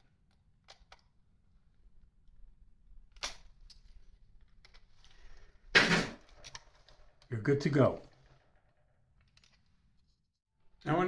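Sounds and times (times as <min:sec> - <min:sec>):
small metallic clicks: 0:00.0 - 0:01.2.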